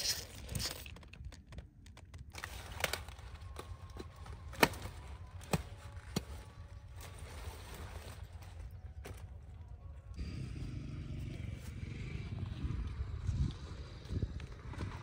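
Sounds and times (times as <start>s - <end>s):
blade snapping through stalk: 2.3s - 6.4s
low steady rumble: 6.6s - 15.0s.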